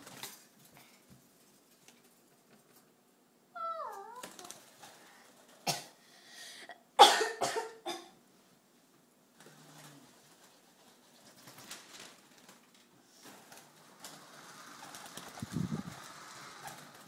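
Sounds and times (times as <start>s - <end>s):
wavering cry: 3.6s - 4.6s
person coughing: 7.0s - 8.2s.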